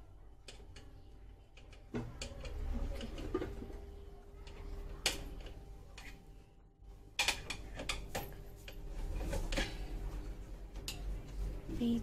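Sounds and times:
hard objects clicking and knocking: 0:00.3 - 0:06.3, 0:07.1 - 0:10.1.

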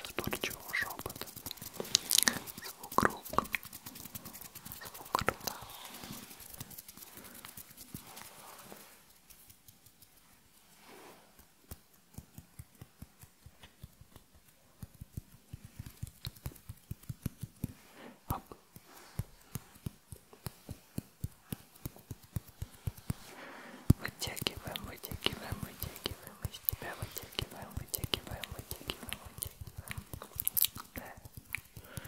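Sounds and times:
fingers tapping on microphone: 0:00.0 - 0:05.6, 0:11.6 - 0:23.3, 0:23.9 - 0:32.0.

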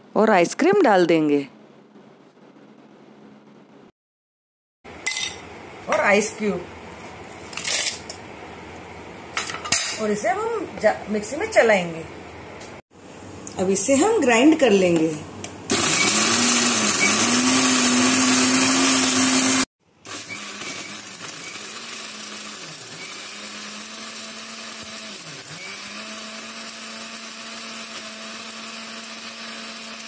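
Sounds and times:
blender crushing ice: 0:15.7 - 0:30.0.

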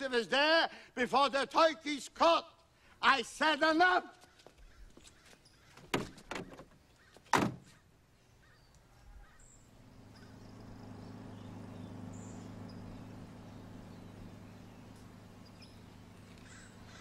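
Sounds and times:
car door slamming shut: 0:07.3 - 0:07.7
car engine humming: 0:08.8 - 0:17.0.

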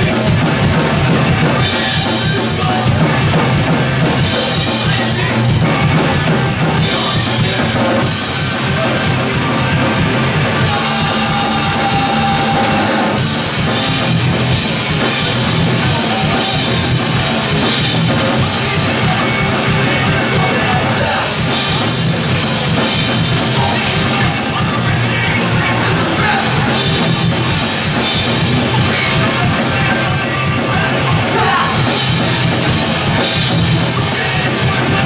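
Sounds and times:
punk band playing loud: 0:00.0 - 0:35.0.

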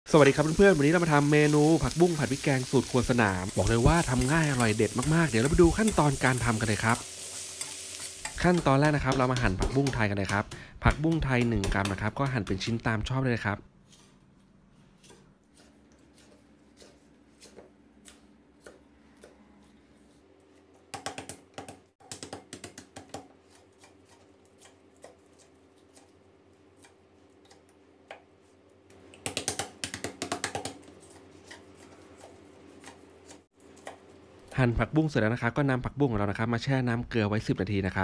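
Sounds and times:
knife chopping on wooden board: 0:08.2 - 0:12.8, 0:15.0 - 0:19.4, 0:20.9 - 0:26.1, 0:29.2 - 0:34.0
rapid chopping: 0:08.4 - 0:12.8.

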